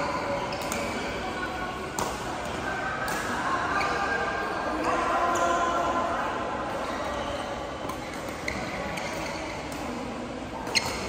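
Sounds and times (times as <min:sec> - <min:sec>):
chatter: 0:00.0 - 0:11.0
rackets hitting shuttlecocks: 0:01.8 - 0:03.4
shoe squeak: 0:08.0 - 0:09.7, 0:10.7 - 0:11.0.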